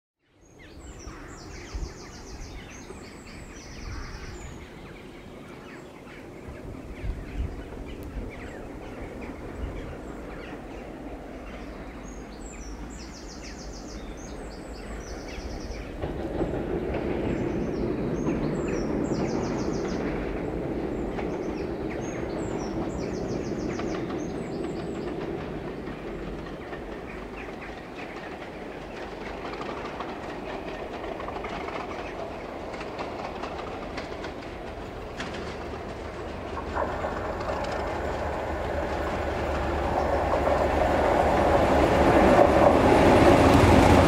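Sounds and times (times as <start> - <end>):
diesel locomotive engine rumble: 0.7 - 44.0.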